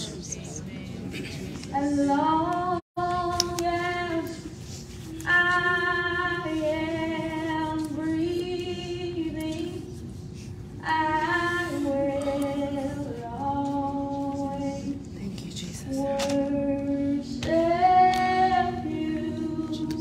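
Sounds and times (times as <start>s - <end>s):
woman singing slowly: 10.8s - 15.1s, 15.8s - 20.0s.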